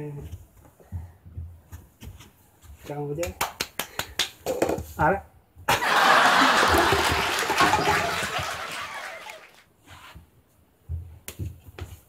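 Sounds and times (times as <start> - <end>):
paper cups clattering: 5.8 - 9.6.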